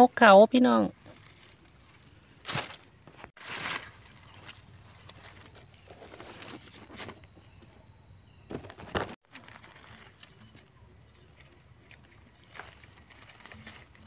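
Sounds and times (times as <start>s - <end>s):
high-pitched insect trill: 0.4s - 14.0s
second higher insect trill: 0.8s - 14.0s
dry leaves crackling and rustling: 1.0s - 7.2s, 8.6s - 10.6s, 11.2s - 14.0s.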